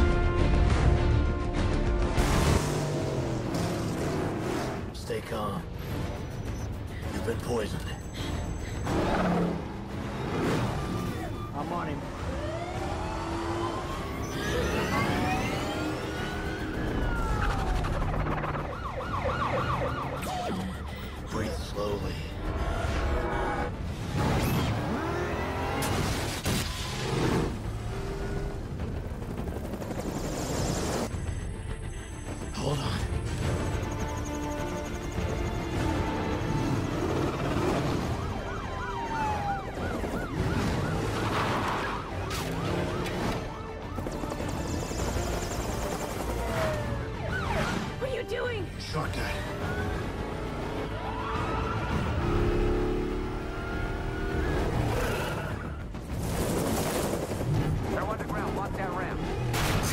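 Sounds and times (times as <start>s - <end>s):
police sirens wailing: 5.8s - 31.2s, 32.3s - 56.1s
siren yelp: 9.4s - 23.7s, 32.6s - 55.9s.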